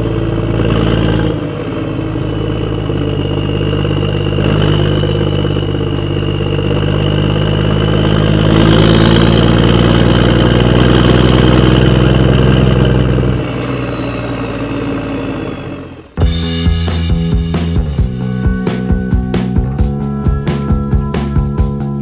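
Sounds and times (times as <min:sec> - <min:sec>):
diesel tractor engine: 0:00.0 - 0:22.0
high whine: 0:00.0 - 0:22.0
music: 0:16.2 - 0:22.0.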